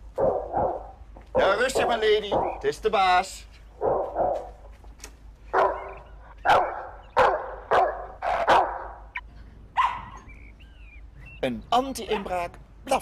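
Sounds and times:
small dog barking through loudspeaker: 0.2 - 2.6, 3.8 - 4.5, 5.6 - 9.0, 9.8 - 10.2, 12.1 - 12.5.

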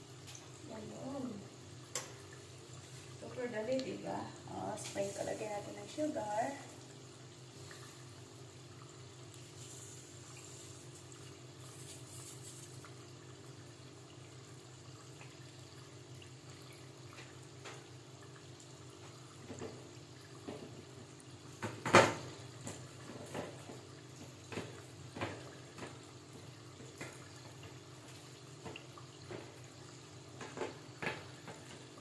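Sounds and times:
food deep-frying in oil: 0.0 - 32.0.

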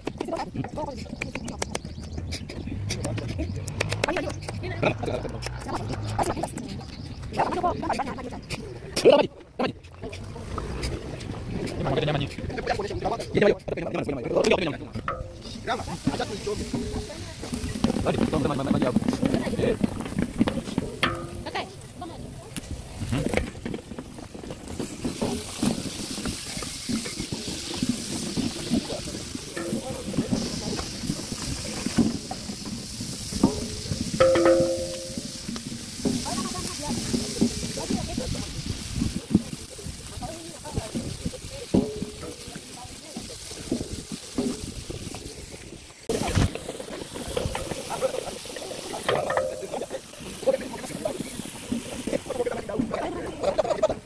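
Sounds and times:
vegetables sizzling in pot: 13.3 - 54.0
wooden spoon scraping pot: 23.0 - 40.0.

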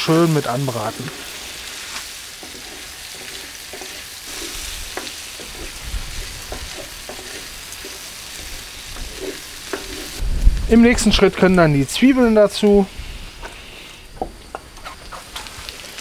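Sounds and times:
food sizzling in a pan: 0.0 - 16.0
wooden spatula knocking and scraping: 2.4 - 10.2.

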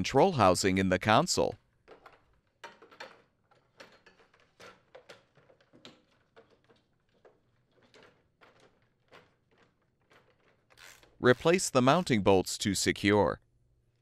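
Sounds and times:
plastic clicks and knocks: 1.8 - 11.2.

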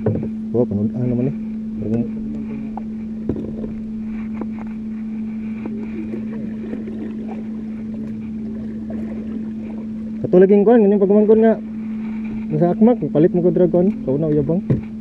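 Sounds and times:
boat engine humming: 0.0 - 15.0.

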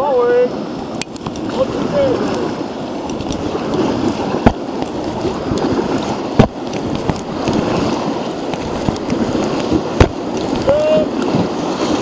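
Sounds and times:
whitewater rapids rushing: 0.0 - 12.0
sharp taps: 6.3 - 7.6.

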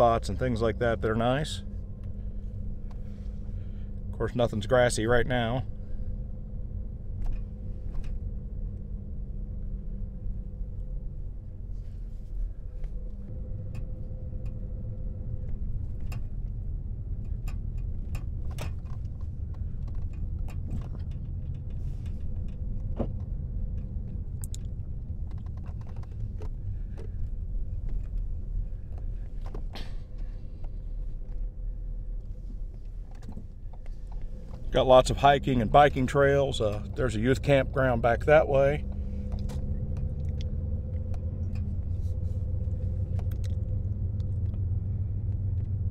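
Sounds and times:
car engine and tyre rumble: 0.0 - 45.9
faint engine hum: 0.0 - 45.9
small clicks and rattles: 15.4 - 31.5.

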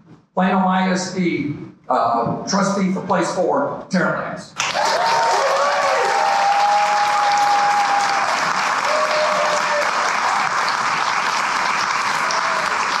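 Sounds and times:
audience applauding: 4.6 - 13.0
crowd cheering: 4.6 - 13.0.

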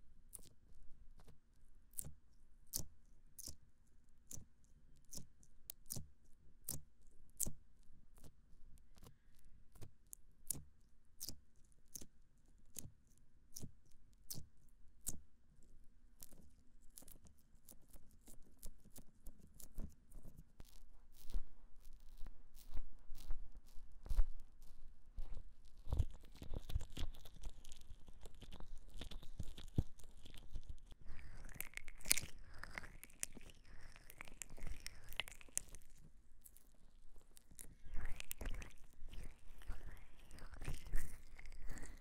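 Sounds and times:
crisp crackles and clicks: 16.2 - 42.0.

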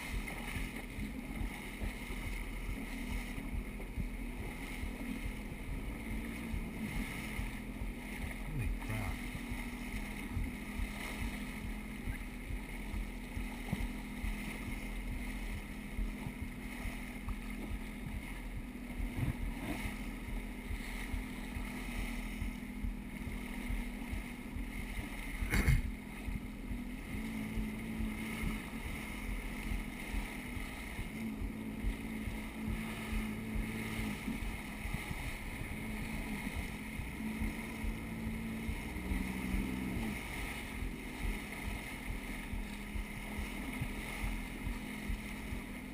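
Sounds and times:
jet ski engine running: 0.0 - 45.9
wind and water spray rushing: 0.0 - 45.9.

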